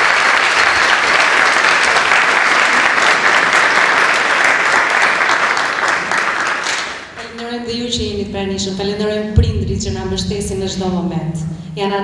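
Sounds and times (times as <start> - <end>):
dense applause: 0.0 - 7.2.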